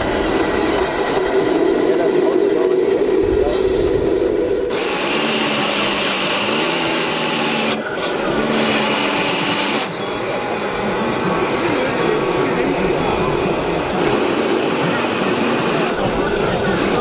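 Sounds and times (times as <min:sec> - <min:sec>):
low drone: 0:00.0 - 0:17.0
small electric motors whining: 0:04.7 - 0:10.2, 0:13.9 - 0:17.0.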